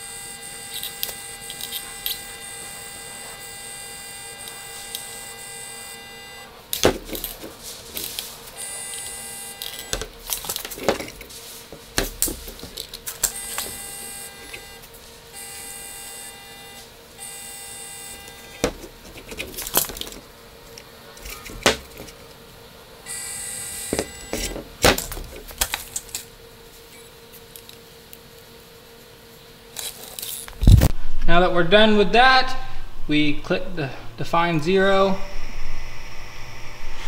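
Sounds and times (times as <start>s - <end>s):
gear motor whirring: 0.0s - 11.3s, 12.1s - 20.2s, 23.1s - 26.0s
faint steady hum: 0.0s - 37.0s.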